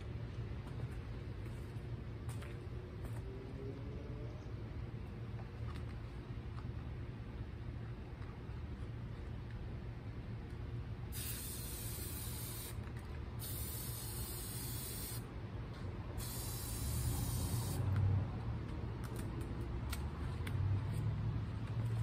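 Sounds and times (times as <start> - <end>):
spray paint can hissing: 11.1 - 12.8, 13.4 - 15.3, 16.2 - 18.0.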